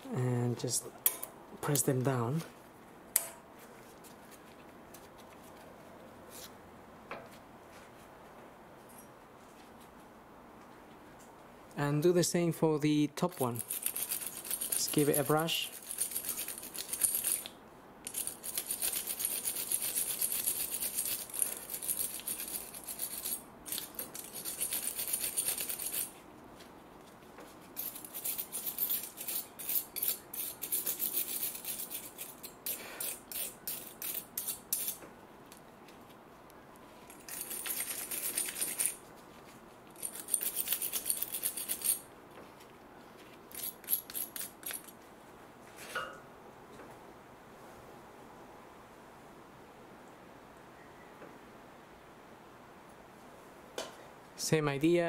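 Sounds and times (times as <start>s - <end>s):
wire brush scrubbing metal: 27.8s - 35.0s.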